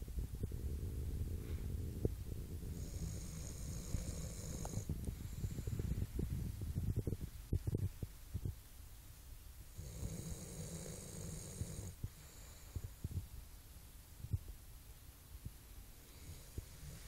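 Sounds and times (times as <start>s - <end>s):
soft low thumps: 0.0s - 8.6s
dog breathing heavily and snoring: 0.6s - 6.2s, 9.7s - 13.1s, 16.0s - 17.0s.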